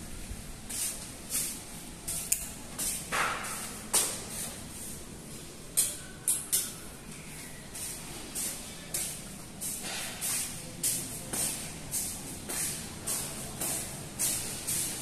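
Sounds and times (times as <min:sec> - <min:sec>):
footsteps scuffing on tiled floor: 0:07.7 - 0:15.0.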